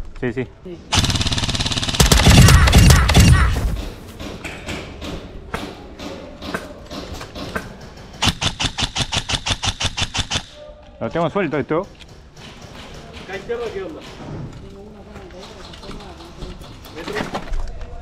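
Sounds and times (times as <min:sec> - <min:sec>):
airsoft rifle rapid firing: 0:00.9 - 0:04.0, 0:08.2 - 0:10.6.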